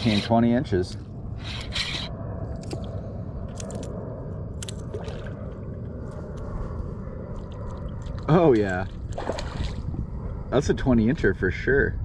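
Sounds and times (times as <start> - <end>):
rumble of water: 0.0 - 12.0
wind: 0.0 - 12.0
camera rubbing against clothing: 1.4 - 2.1.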